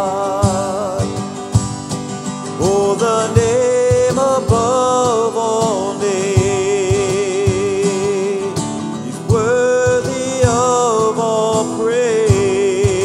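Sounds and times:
acoustic guitar strumming: 0:00.0 - 0:13.0
cajon beat: 0:00.0 - 0:13.0
wordless singing: 0:00.0 - 0:13.0.

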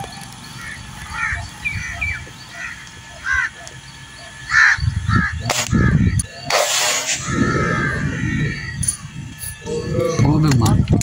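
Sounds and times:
crows cawing: 0:00.5 - 0:10.4
sharp crack: 0:05.5 - 0:05.8, 0:06.5 - 0:07.3.

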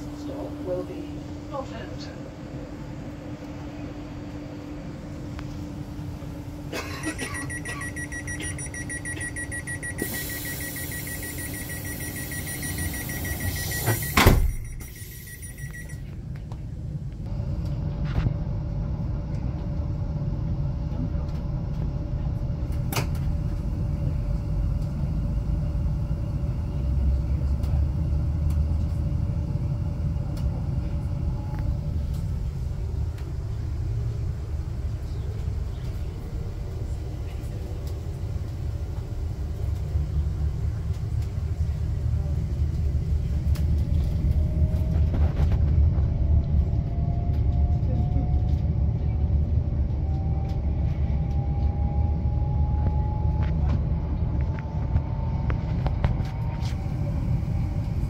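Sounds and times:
electric train rumbling: 0:00.0 - 0:58.0
train motor hum: 0:00.0 - 0:58.0
train door warning beeping: 0:07.0 - 0:16.1
train doors shutting thud: 0:13.2 - 0:15.0.

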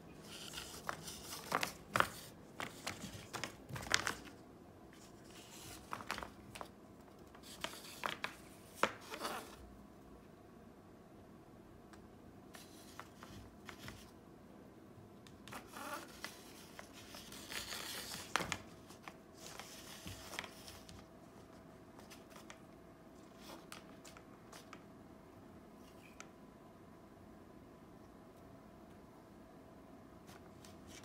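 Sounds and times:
paper mask rustling: 0:00.1 - 0:09.6, 0:15.4 - 0:24.8, 0:30.2 - 0:31.0.

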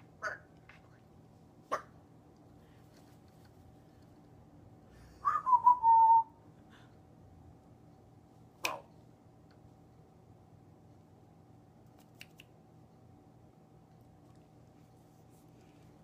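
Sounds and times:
parrot whistling: 0:05.2 - 0:06.4.

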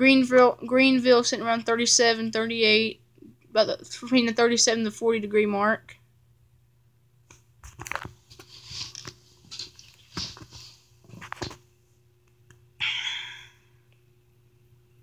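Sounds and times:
faint steady hum: 0:00.0 - 0:15.0
handling rustles and clicks: 0:07.3 - 0:11.6.

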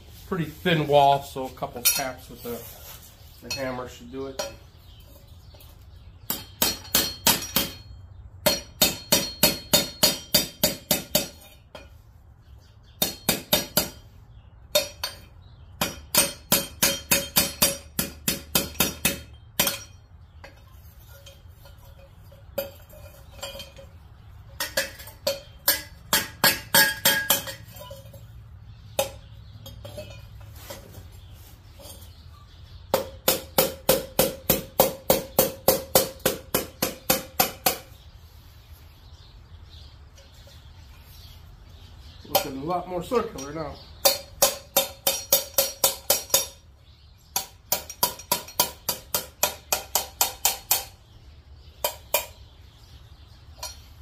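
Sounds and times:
hammer tapping metal pipe: 0:06.3 - 0:11.9, 0:14.7 - 0:20.6, 0:24.6 - 0:28.0, 0:44.0 - 0:46.6, 0:47.4 - 0:51.0.

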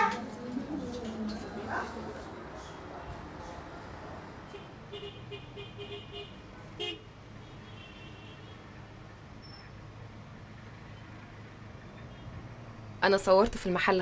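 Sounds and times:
street traffic hum: 0:00.0 - 0:14.0.

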